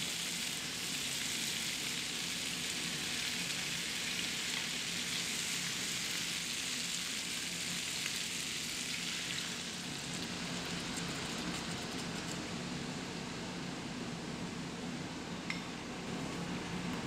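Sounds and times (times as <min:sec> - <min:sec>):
food sizzling in frying pan: 0:00.0 - 0:11.2.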